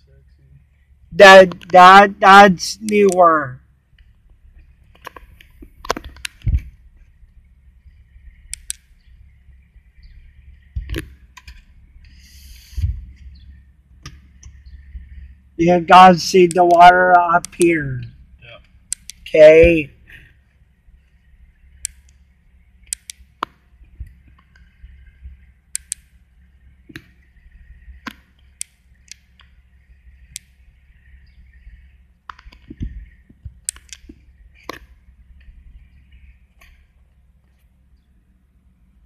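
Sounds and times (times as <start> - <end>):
car idling hum: 0.0 - 39.0
sharp clicks and taps: 1.5 - 1.8, 16.4 - 19.8.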